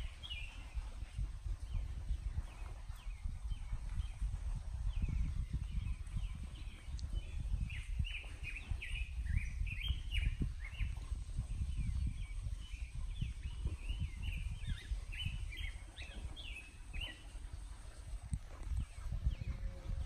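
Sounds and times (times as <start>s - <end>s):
birds chirping: 3.5s - 11.0s, 11.6s - 20.0s
low uneven rumble: 10.9s - 20.0s.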